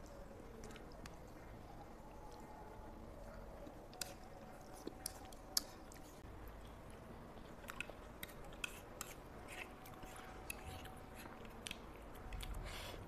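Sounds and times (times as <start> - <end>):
faint chewing: 0.0 - 13.0
fork scraping a plate: 8.6 - 10.9.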